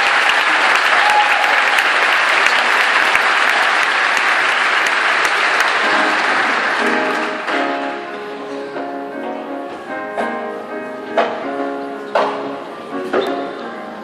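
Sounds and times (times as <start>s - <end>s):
audience applauding: 0.0s - 8.0s
orchestra playing: 5.3s - 13.0s.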